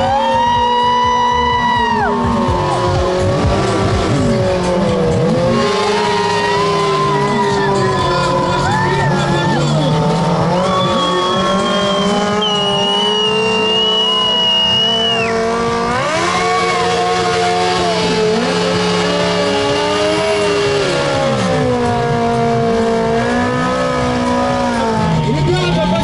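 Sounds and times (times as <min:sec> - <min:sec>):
racing car engines revving: 0:00.0 - 0:26.0.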